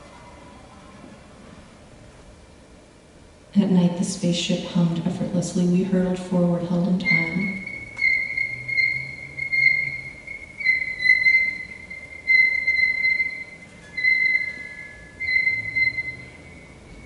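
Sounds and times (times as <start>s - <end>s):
soft low hum: 0.0s - 17.0s
high steady musical tone: 6.9s - 17.0s.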